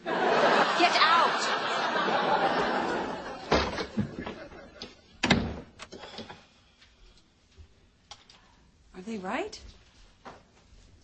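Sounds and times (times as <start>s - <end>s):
studio audience laughter: 0.0s - 5.1s
door slamming shut: 3.5s - 4.2s, 5.2s - 5.8s.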